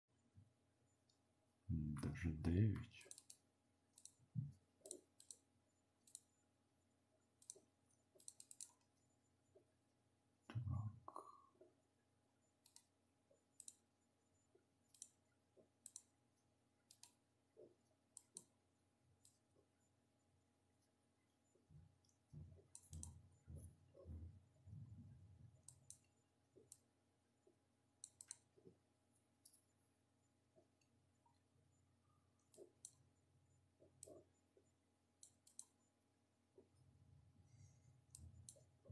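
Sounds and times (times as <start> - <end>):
computer mouse clicks: 3.0 - 6.4, 7.3 - 9.0, 12.6 - 13.9, 14.5 - 16.2, 16.8 - 18.6, 19.2 - 19.6, 22.0 - 24.2, 25.6 - 28.8, 29.4 - 29.8, 32.3 - 33.1, 33.8 - 35.9, 38.0 - 38.9.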